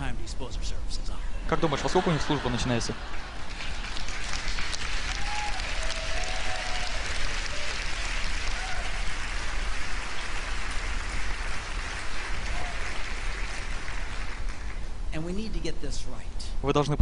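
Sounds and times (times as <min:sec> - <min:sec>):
audience laughing: 0:01.5 - 0:03.5
audience applauding: 0:01.9 - 0:14.9.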